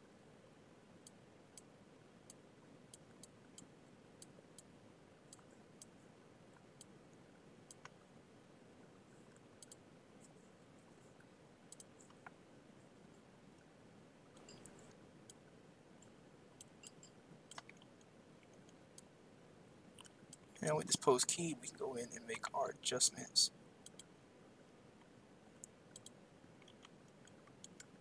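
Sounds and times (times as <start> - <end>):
low steady hiss: 0.0 - 28.0
computer mouse clicking: 1.0 - 4.7, 5.3 - 7.0, 7.7 - 8.0, 9.2 - 10.4, 11.0 - 12.4, 14.3 - 19.1, 23.8 - 24.1, 25.0 - 28.0.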